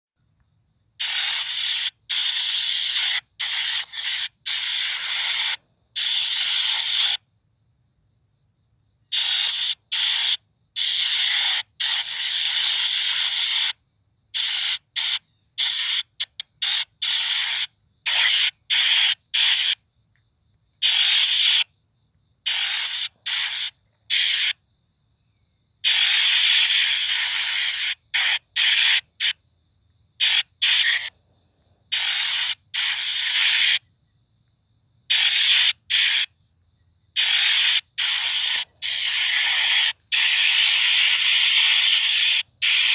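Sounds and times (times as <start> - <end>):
white noise bursts: 1.0 - 7.2, 14.4 - 19.8, 22.5 - 24.6, 25.9 - 29.0, 30.2 - 31.1, 31.9 - 33.8, 37.2 - 42.9.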